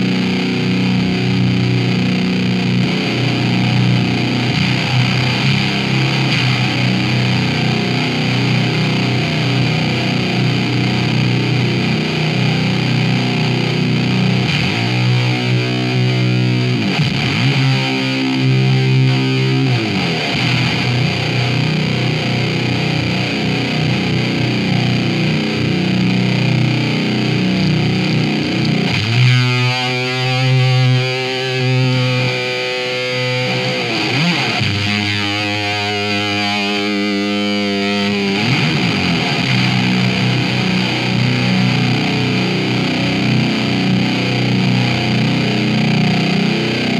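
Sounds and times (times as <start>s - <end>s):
distorted electric guitar: 0.0s - 46.9s.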